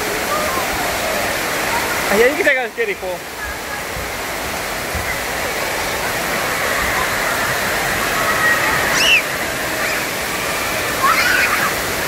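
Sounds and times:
water rushing and splashing: 0:00.0 - 0:12.0
short high squeal: 0:08.9 - 0:09.3.

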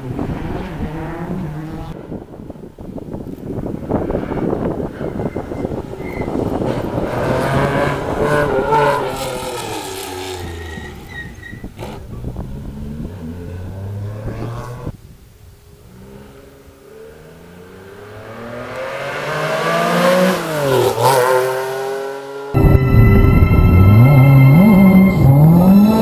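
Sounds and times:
rally car engine: 0:00.0 - 0:15.0, 0:15.7 - 0:26.0
rally car passing by: 0:03.8 - 0:14.9, 0:17.0 - 0:22.7.

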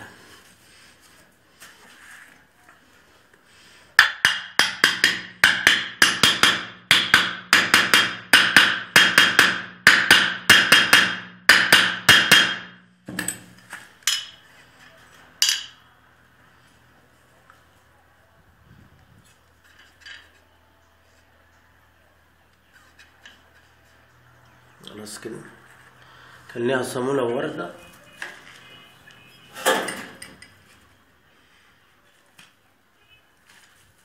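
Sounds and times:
hammer tapping metal: 0:04.0 - 0:14.4, 0:15.4 - 0:15.8.

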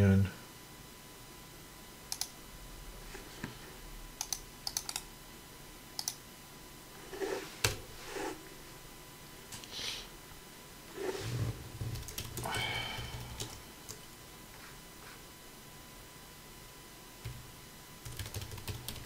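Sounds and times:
computer keyboard typing: 0:02.1 - 0:02.4, 0:04.2 - 0:05.0, 0:06.0 - 0:06.2, 0:11.9 - 0:14.0, 0:18.0 - 0:19.0.

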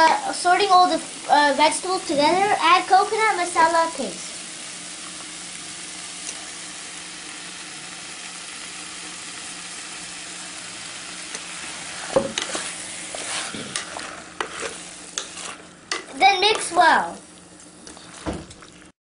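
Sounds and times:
vegetables sizzling in a pan: 0:00.0 - 0:19.0
spatula scraping a pot: 0:11.3 - 0:16.7.

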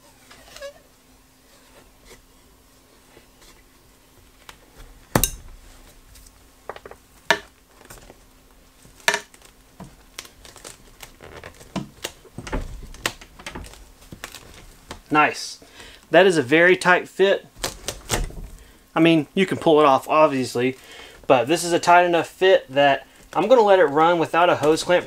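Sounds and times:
hose rustling and scraping: 0:07.7 - 0:15.0.

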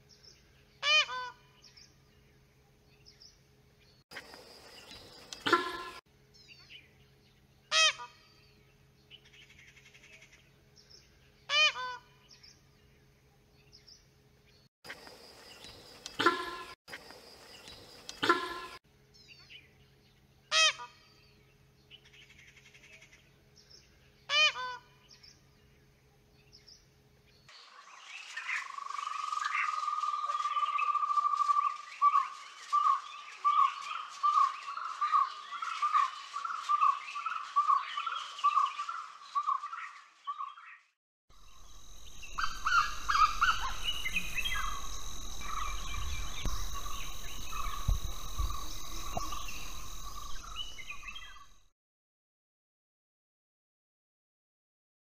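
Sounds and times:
insect buzz: 0:04.1 - 0:06.1, 0:14.9 - 0:18.8, 0:41.3 - 0:51.7
loud animal calls: 0:05.3 - 0:06.0, 0:42.0 - 0:51.5
bird chirps: 0:41.4 - 0:51.7
bird rapid notes: 0:42.0 - 0:51.7.

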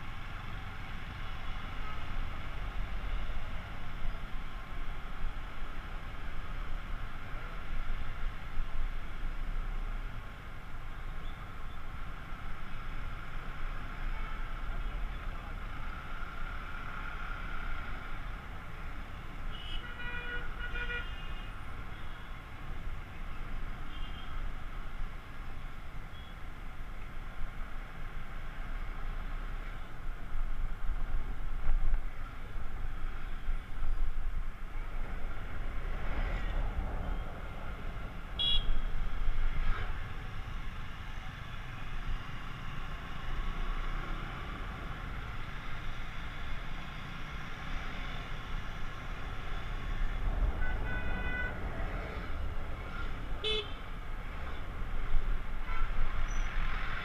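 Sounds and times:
scooter engine and road noise: 0:00.0 - 0:57.0
vehicle horns beeping: 0:38.4 - 0:38.8, 0:53.4 - 0:53.8.

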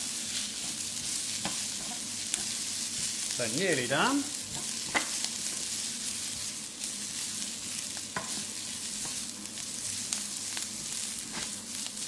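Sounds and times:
vegetables sizzling in frying pan: 0:00.0 - 0:12.0
wooden spoon knocking on pan: 0:08.2 - 0:08.4.

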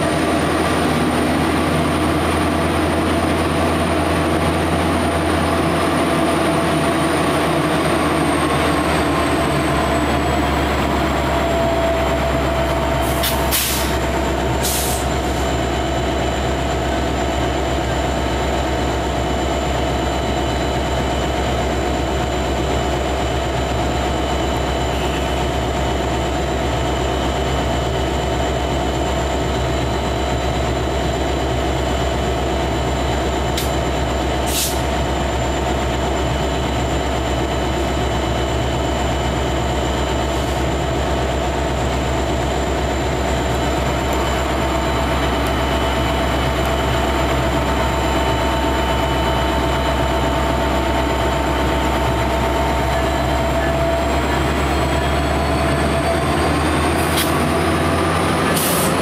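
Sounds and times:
passenger train running: 0:00.0 - 0:59.0
short hisses: 0:13.2 - 0:14.0.

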